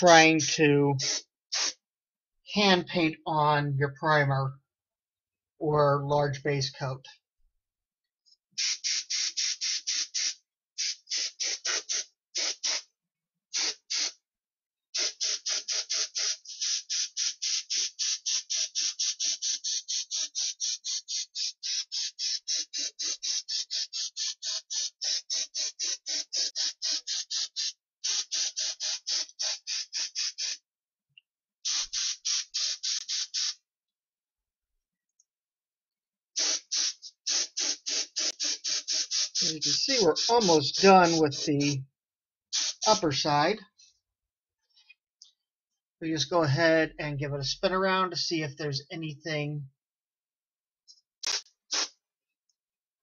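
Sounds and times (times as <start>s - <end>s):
spray gun hissing: 1.0s - 1.8s, 8.6s - 12.8s, 13.6s - 14.2s, 15.0s - 30.6s, 31.7s - 33.6s, 36.4s - 41.8s, 42.5s - 43.2s.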